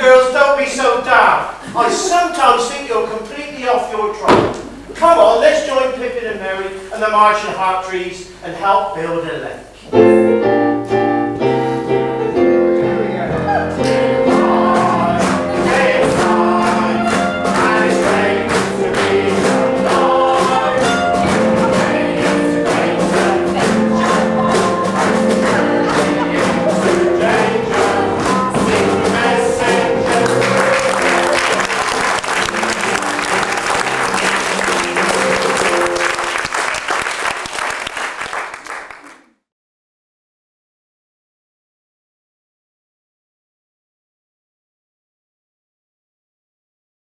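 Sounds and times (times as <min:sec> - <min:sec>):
music with held notes and beat: 0:10.0 - 0:31.8, 0:32.5 - 0:36.4
audience applause: 0:14.6 - 0:39.3.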